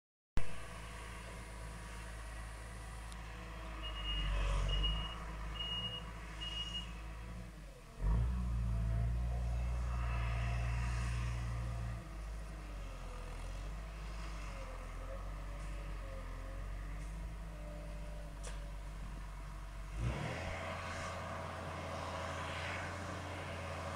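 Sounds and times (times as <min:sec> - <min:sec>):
reversing beeps: 0:03.8 - 0:06.9.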